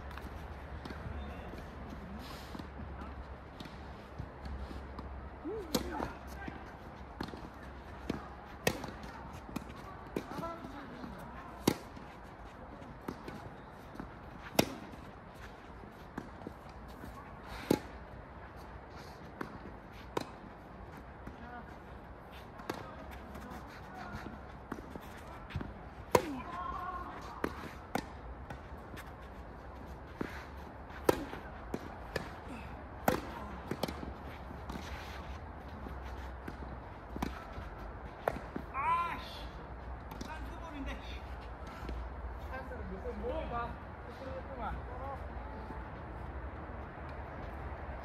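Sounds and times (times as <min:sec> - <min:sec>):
tennis ball hits and bounces: 0:07.2 - 0:12.2, 0:12.8 - 0:18.0, 0:22.6 - 0:29.2, 0:30.1 - 0:32.4, 0:33.0 - 0:35.0, 0:35.8 - 0:37.6, 0:38.2 - 0:38.7
racket striking ball: 0:11.5 - 0:12.0, 0:13.0 - 0:15.0, 0:17.5 - 0:18.0, 0:31.0 - 0:32.4, 0:33.0 - 0:34.1.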